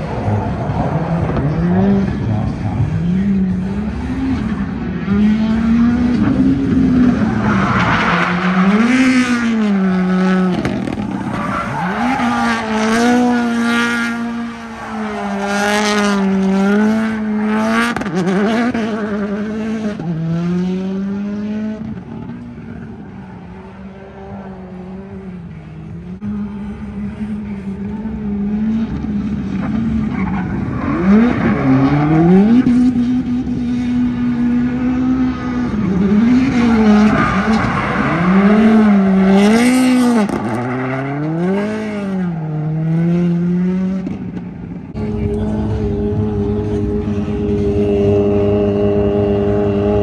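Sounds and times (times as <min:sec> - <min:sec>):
tires squealing: 0:00.0 - 0:19.4, 0:29.5 - 0:33.6, 0:34.5 - 0:42.8
car engine at high revs: 0:00.0 - 0:50.0.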